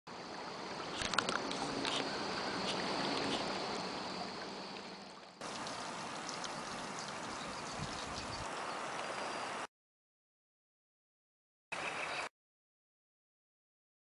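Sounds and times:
creek water rushing: 0.1 - 9.6.

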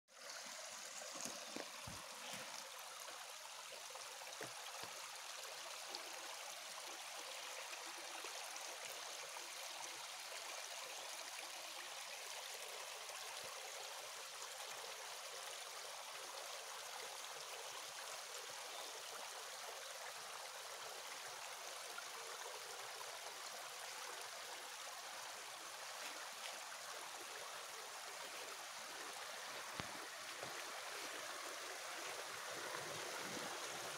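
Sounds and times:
stream running over stones: 0.1 - 33.9.

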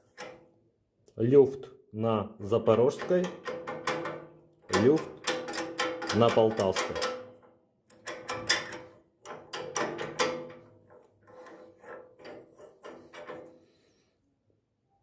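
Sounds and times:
metal hitch joint clunking: 2.9 - 13.7.

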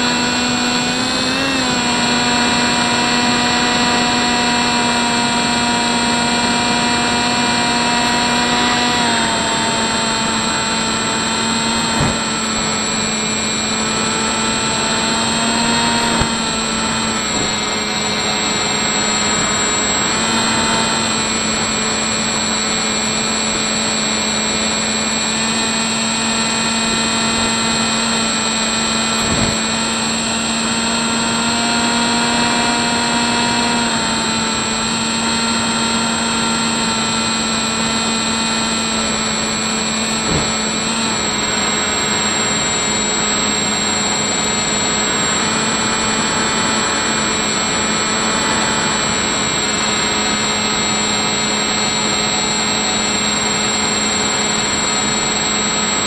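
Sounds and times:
electric motor and propeller whining: 0.0 - 56.0
rush of air: 11.4 - 14.4, 29.0 - 30.2.

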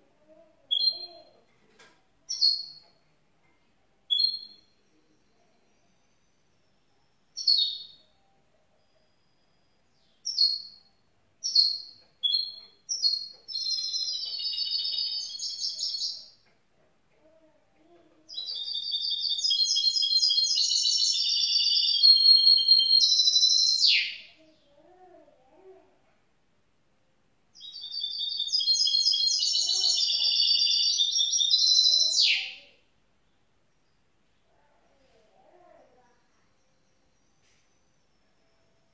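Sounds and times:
bird chirping and warbling: 0.7 - 1.4, 2.3 - 2.9, 4.1 - 4.8, 7.3 - 8.2, 9.9 - 16.4, 18.3 - 24.8, 27.6 - 32.8.

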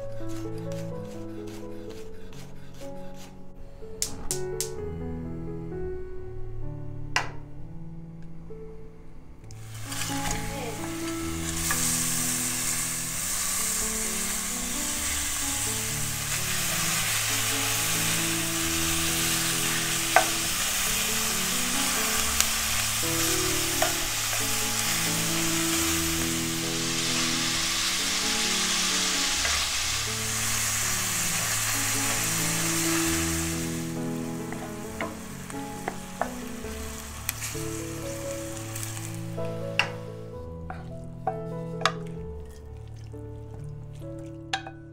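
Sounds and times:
soft background music: 0.0 - 44.9
meat sizzling in a skillet: 9.6 - 41.0
spatula clacking against pan: 44.6 - 44.8.

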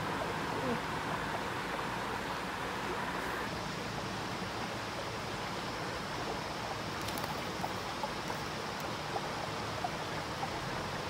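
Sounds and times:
stream water flowing: 0.0 - 11.0
faint small ticks: 6.9 - 9.0.

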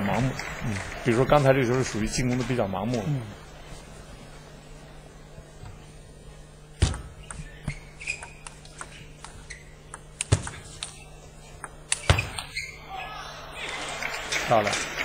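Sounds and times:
table tennis ball struck: 6.8 - 7.4, 9.9 - 10.9
table tennis ball bouncing: 6.8 - 11.0, 11.6 - 12.6.

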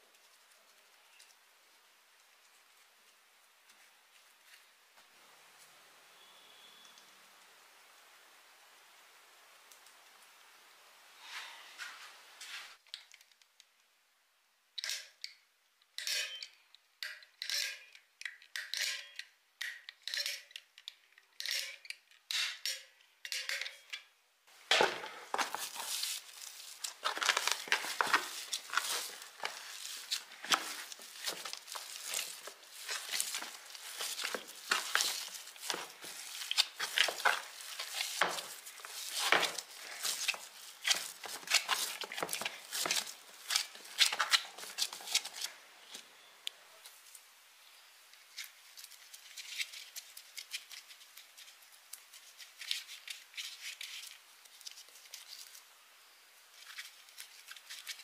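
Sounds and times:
hand kneading wet mud: 24.8 - 45.5.

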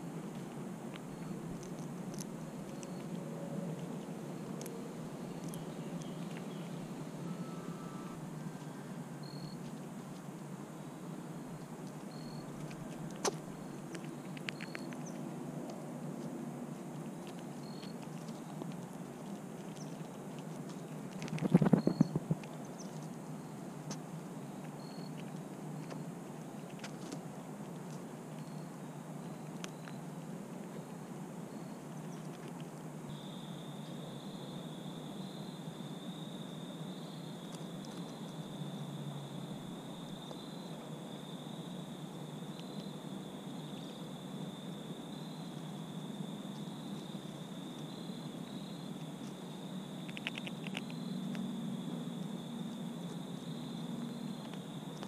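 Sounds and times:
low background hum and hiss: 0.0 - 55.0
squirrel foraging in birdseed: 0.0 - 55.0
insect chorus trilling: 2.8 - 9.7, 21.3 - 22.4, 33.1 - 55.0.

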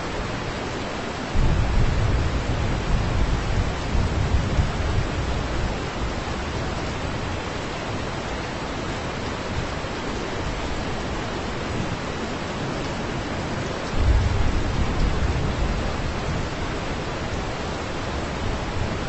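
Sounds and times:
heavy rain pouring: 0.0 - 19.0
low rumble of thunder: 1.3 - 7.6, 13.8 - 17.4.

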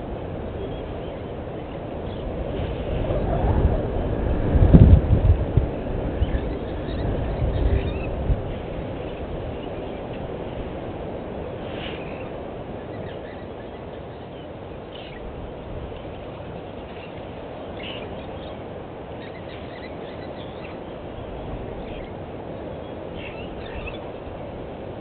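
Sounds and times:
low rushing noise: 0.0 - 19.2.

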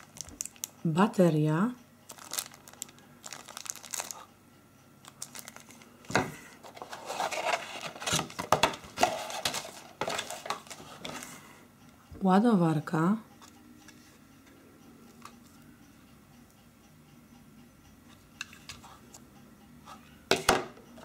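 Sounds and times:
plastic packaging crinkling: 0.0 - 0.7, 2.1 - 4.3, 5.0 - 5.9, 6.6 - 10.8
rummaging in cardboard box: 6.6 - 11.3.

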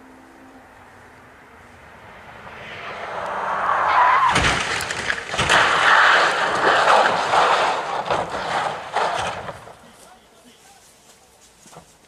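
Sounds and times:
rally car approaching: 0.0 - 9.0
heavy impacts of car crashing: 2.8 - 9.9
loud rough crashing noise: 3.6 - 9.8.

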